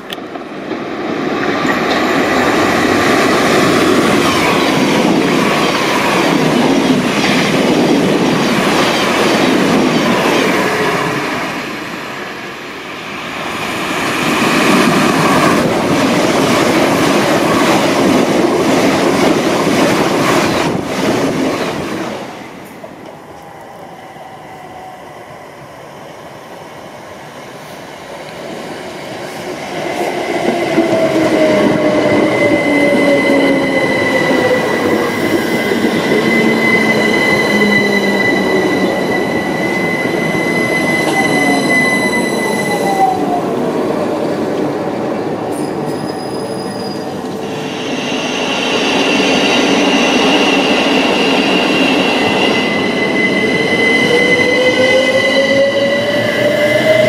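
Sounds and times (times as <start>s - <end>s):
electric train wheels rumbling: 0.0s - 57.0s
passing electric train: 0.0s - 57.0s
steady high squeal: 22.5s - 27.3s, 30.1s - 43.5s, 45.5s - 57.0s.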